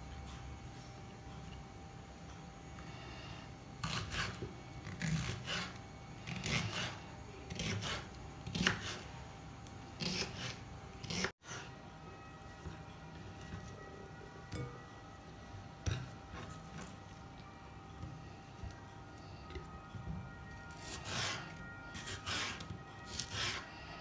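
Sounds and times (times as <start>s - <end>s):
knife chopping on wooden board: 6.3s - 9.0s.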